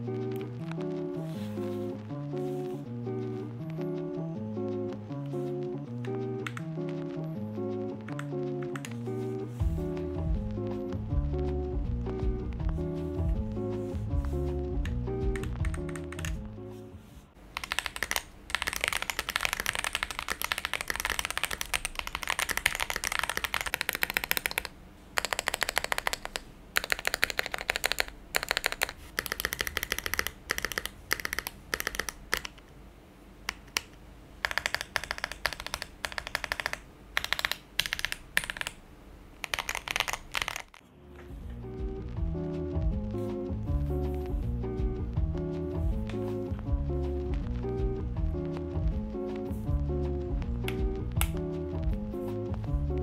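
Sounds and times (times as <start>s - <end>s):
mechanical keyboard typing: 15.3s - 16.4s, 17.5s - 32.6s, 33.5s - 38.8s, 39.4s - 40.8s.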